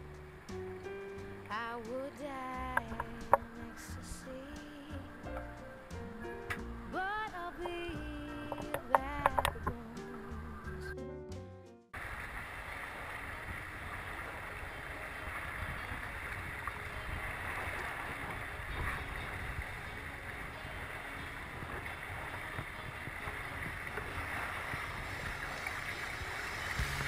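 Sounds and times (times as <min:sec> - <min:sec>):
water rushing along hull: 0:00.0 - 0:10.7, 0:12.0 - 0:27.0
wind on microphone: 0:12.0 - 0:27.0.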